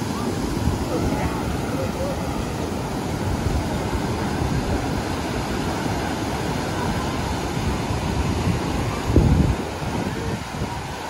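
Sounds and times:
sea surf breaking on beach: 0:00.0 - 0:11.0.

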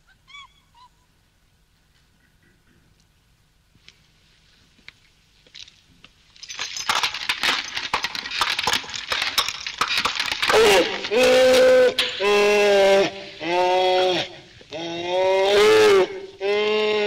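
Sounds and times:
rapid clattering and clinking: 0:06.4 - 0:12.2
donkey braying: 0:10.2 - 0:17.0.

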